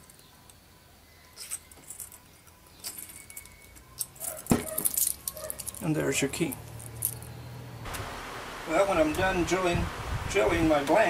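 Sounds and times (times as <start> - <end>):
light metallic clinks: 1.2 - 7.5.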